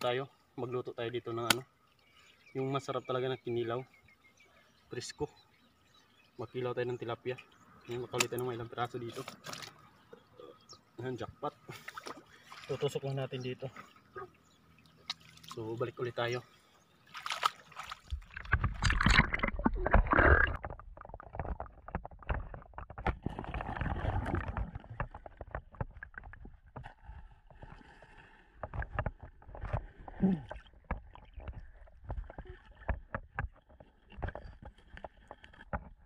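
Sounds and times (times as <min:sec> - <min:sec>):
river water splashing: 0:11.6 - 0:15.8, 0:17.0 - 0:21.1
underwater clicks and knocks: 0:18.1 - 0:27.8, 0:28.6 - 0:36.0
underwater rumble: 0:18.1 - 0:33.4.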